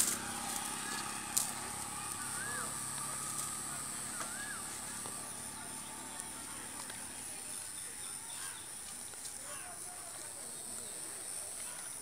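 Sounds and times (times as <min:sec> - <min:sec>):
high insect drone: 0:00.0 - 0:12.0
bird whistled calls: 0:02.2 - 0:02.8, 0:04.1 - 0:04.7.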